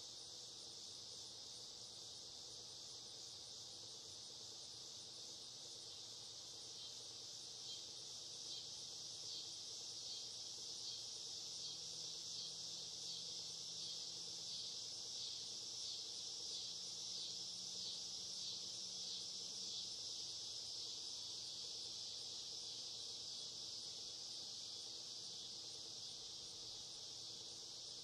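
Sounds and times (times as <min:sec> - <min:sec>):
insect chorus trilling: 0:00.0 - 0:28.0.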